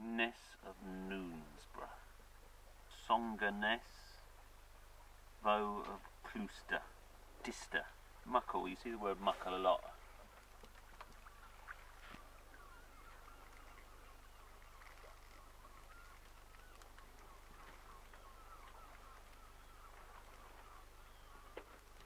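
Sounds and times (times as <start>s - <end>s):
waterbirds chattering: 0.2s - 22.0s.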